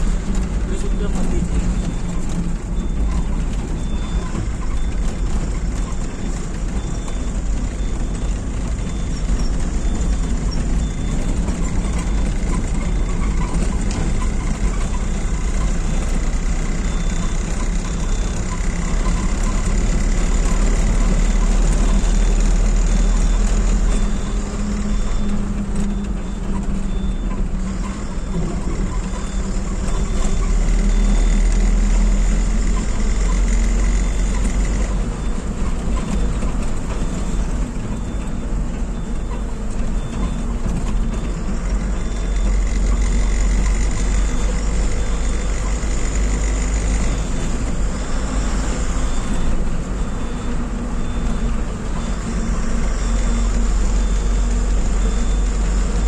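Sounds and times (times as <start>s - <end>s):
vehicle engine and road rumble: 0.0s - 56.0s
faint high beep: 0.7s - 5.2s, 39.0s - 56.0s.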